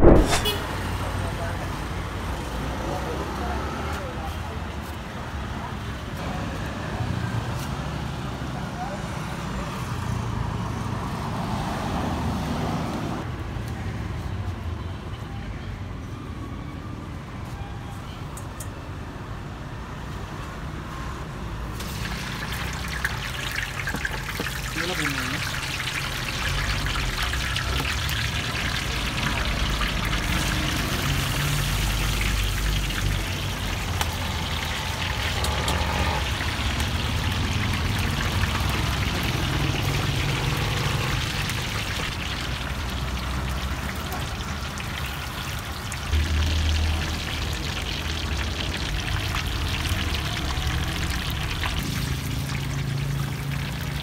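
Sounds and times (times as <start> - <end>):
short low thump: 0.0 - 0.6
food deep-frying in oil: 21.7 - 54.0.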